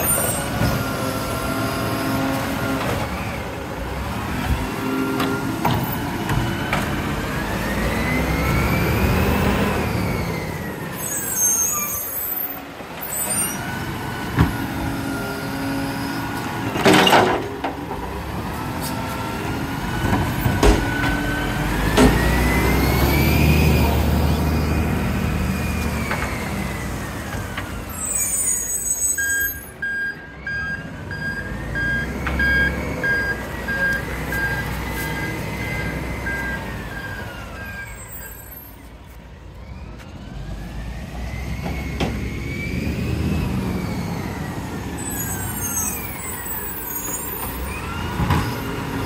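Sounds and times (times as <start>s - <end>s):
diesel truck engine revving: 0.0s - 38.5s, 39.7s - 49.0s
reversing beeps: 28.2s - 38.7s.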